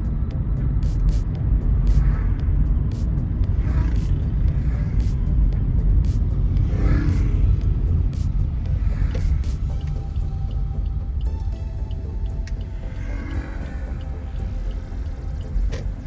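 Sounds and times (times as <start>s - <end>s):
car road rumble: 0.0s - 16.0s
music with a steady beat: 0.0s - 16.0s.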